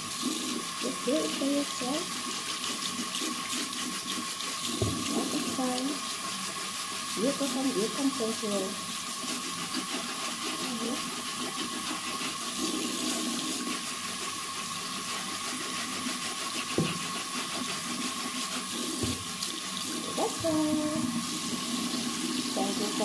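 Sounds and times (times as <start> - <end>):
tap water splashing into sink: 2.8 - 6.6, 16.6 - 17.1, 18.9 - 23.0
knock: 4.8 - 5.3, 16.8 - 17.0.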